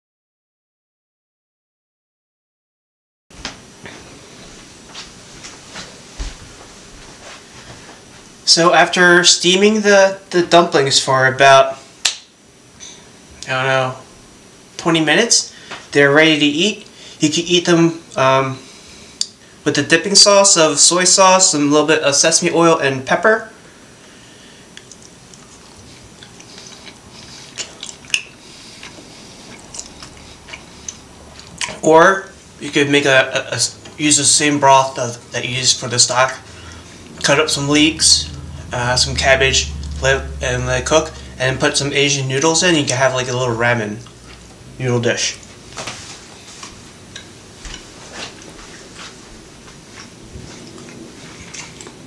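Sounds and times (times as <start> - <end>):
room hiss: 3.4 - 52.0
person chewing: 24.7 - 31.8, 49.9 - 52.0.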